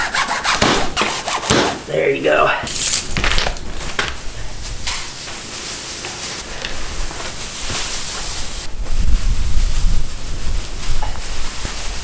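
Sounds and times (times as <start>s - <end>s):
straw rustling and crackling: 2.7s - 12.0s.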